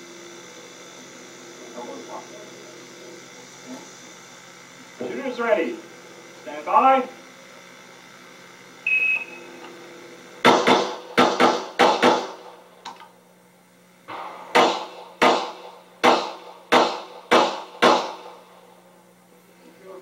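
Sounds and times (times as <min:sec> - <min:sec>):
shot timer beep: 0:08.9 - 0:09.6
rapid pistol fire: 0:10.4 - 0:12.5, 0:14.1 - 0:18.4.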